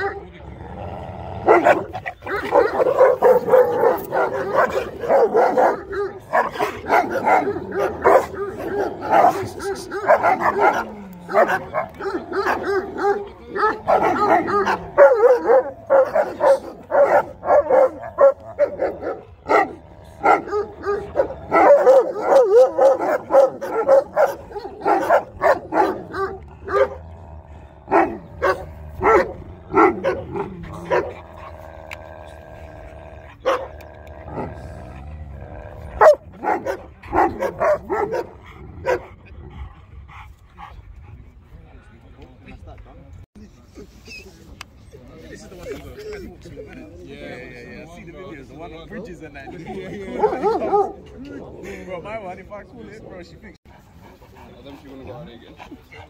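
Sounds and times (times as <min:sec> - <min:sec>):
large dogs barking: 0:00.0 - 0:41.0, 0:49.5 - 0:51.6.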